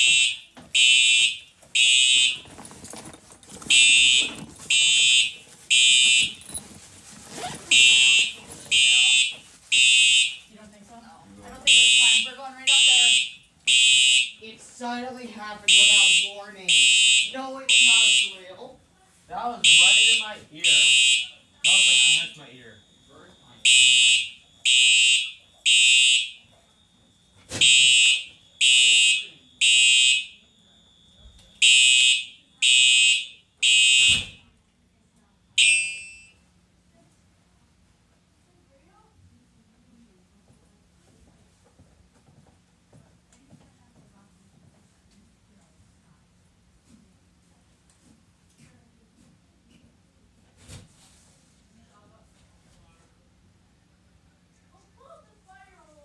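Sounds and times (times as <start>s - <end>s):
fire alarm horn blasts: 0.0s - 2.5s, 3.7s - 6.4s, 7.7s - 10.5s, 11.7s - 14.6s, 15.7s - 18.7s, 19.5s - 34.6s, 35.6s - 36.4s.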